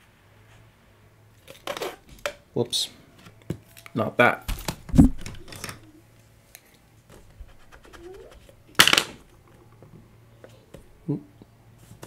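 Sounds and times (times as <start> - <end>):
faint scratches: 7.3 - 8.5.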